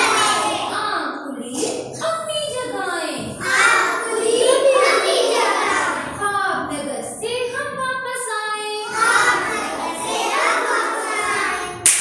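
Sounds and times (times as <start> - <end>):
young children singing: 0.0 - 1.0, 3.2 - 6.4, 8.8 - 11.9.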